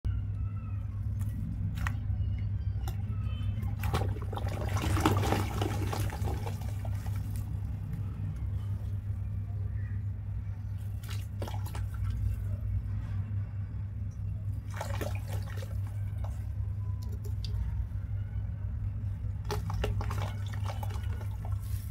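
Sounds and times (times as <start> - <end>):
steady low hum: 0.0 - 21.9
chunks splashing into water: 3.7 - 7.4, 11.0 - 12.2, 14.6 - 16.4.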